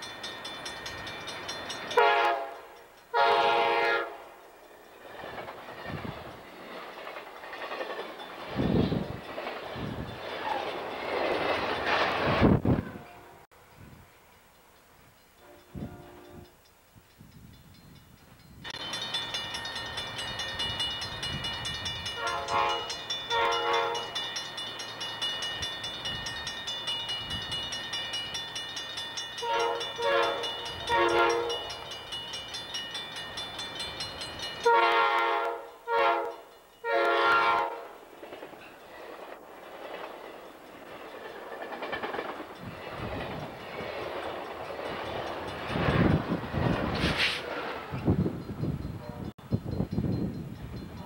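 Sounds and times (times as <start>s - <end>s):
train rumble: 0.0s - 51.0s
train air horn blasts: 2.0s - 4.4s, 12.7s - 14.0s, 15.4s - 16.6s, 22.2s - 24.2s, 29.4s - 31.7s, 34.6s - 38.0s.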